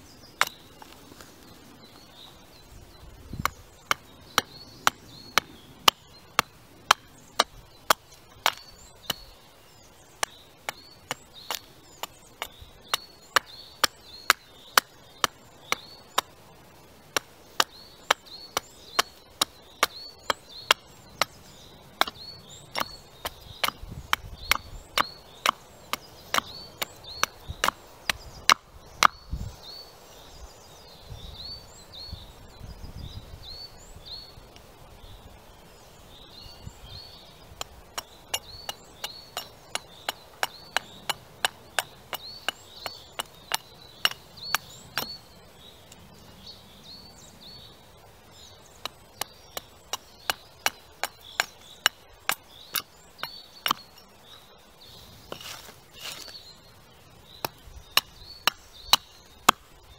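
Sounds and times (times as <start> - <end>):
bird chirping: 0.0 - 59.9
axe chopping wood: 3.3 - 9.4, 10.2 - 16.3, 17.1 - 29.3, 37.5 - 45.2, 48.8 - 54.0, 57.4 - 59.7.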